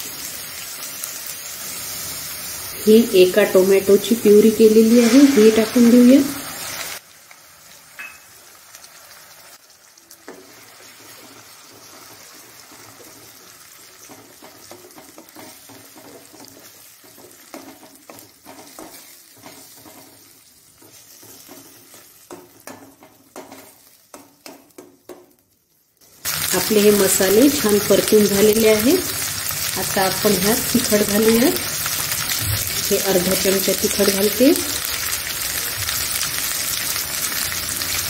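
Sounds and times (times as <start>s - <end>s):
food sizzling in hot oil: 0.0s - 38.0s
spoon scraping a metal pan: 4.7s - 6.2s.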